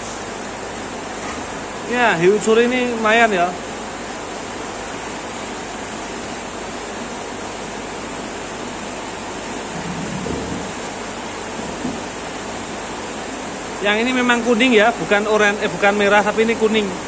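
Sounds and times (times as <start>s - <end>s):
steady rain falling: 5.1s - 17.0s.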